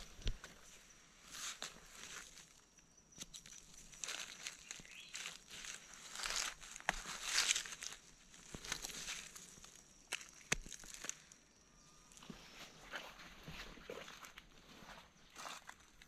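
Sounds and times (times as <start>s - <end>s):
dry leaves crunching and rustling: 4.0s - 11.1s.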